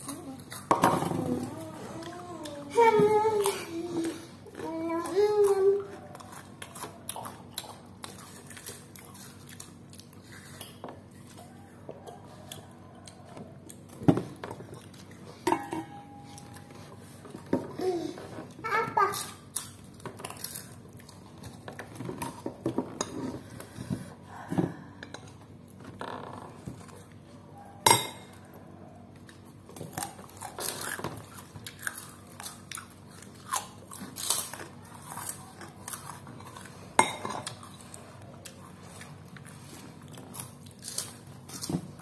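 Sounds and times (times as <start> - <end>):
chewing: 3.4 - 15.4, 18.5 - 24.0, 26.7 - 42.0
cracker crunching: 4.5 - 15.3, 19.1 - 22.6, 29.1 - 42.0.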